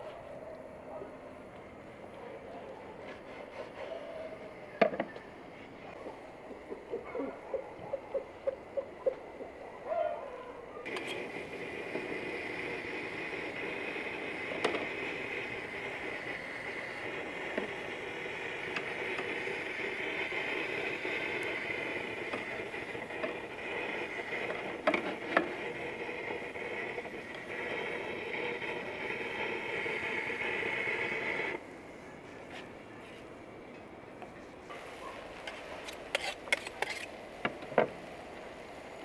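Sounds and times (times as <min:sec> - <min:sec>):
meat sizzling on hot stone: 0:10.9 - 0:31.6.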